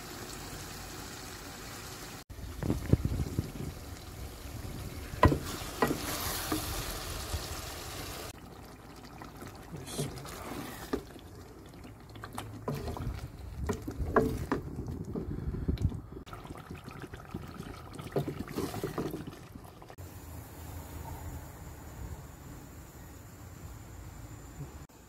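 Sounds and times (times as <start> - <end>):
gravy sloshing and bubbling: 2.3 - 20.0.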